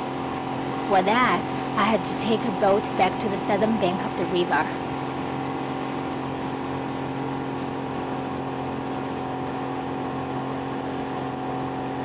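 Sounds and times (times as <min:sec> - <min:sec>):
outboard motor running: 0:00.0 - 0:12.0.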